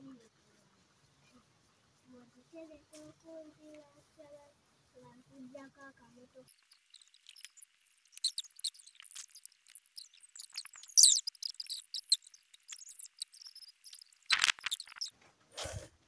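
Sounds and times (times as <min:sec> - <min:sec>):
scrape: 0:15.6 - 0:15.9.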